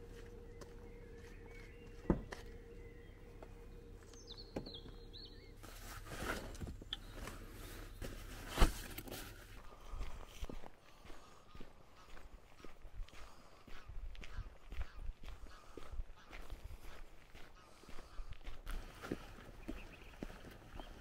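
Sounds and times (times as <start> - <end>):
bird chirping: 0.0 - 5.7, 19.3 - 21.0
faint steady hum: 0.0 - 21.0.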